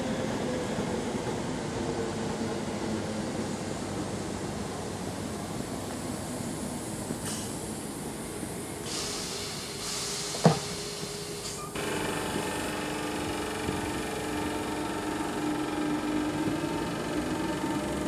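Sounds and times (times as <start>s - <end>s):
air hiss: 6.6s - 8.1s, 8.7s - 11.7s
traction motors whining: 11.6s - 18.0s.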